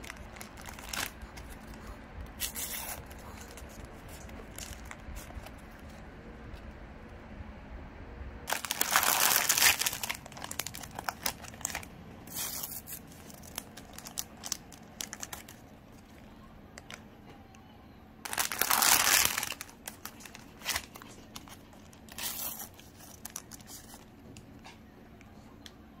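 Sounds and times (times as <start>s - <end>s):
packaging rustling: 0.0s - 1.8s, 2.4s - 6.0s, 8.5s - 16.2s, 18.2s - 24.1s
plastic wrappers crinkling and tearing: 0.0s - 6.0s, 8.5s - 16.2s, 18.2s - 24.2s.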